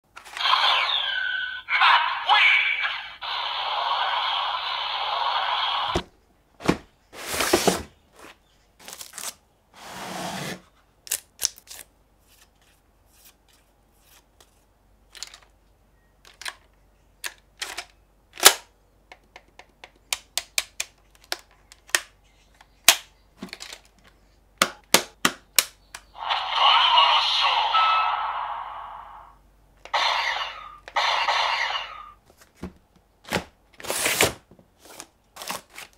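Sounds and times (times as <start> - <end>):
plastic clicks and snaps: 16.2 - 26.1
continuous loud sound: 26.2 - 32.2.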